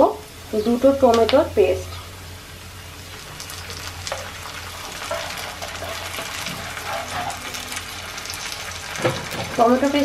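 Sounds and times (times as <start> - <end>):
food sizzling in hot oil: 0.0 - 10.0
wooden spatula scraping pan: 4.9 - 7.6.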